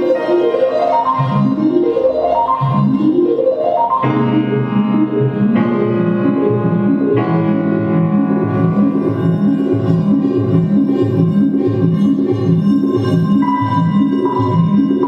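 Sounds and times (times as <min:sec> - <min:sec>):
keyboard playing chords: 0:00.0 - 0:15.0
busy bass line: 0:04.0 - 0:15.0.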